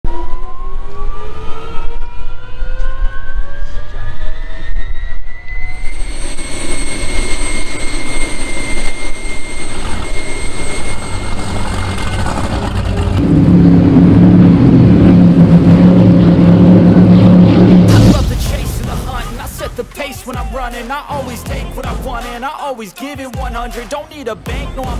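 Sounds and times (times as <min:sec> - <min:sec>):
turbine whining: 0:00.1 - 0:22.5
powerboat engines droning: 0:05.9 - 0:18.1.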